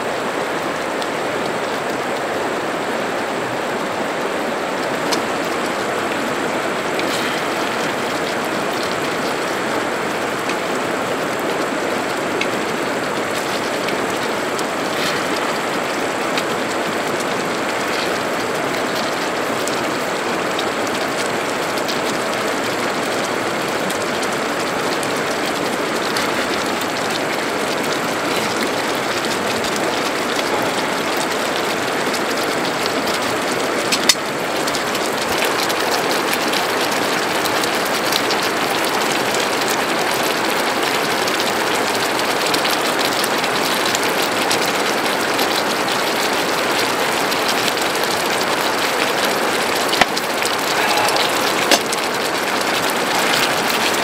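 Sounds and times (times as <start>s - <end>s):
food sizzling in a pan: 50.0s - 54.0s.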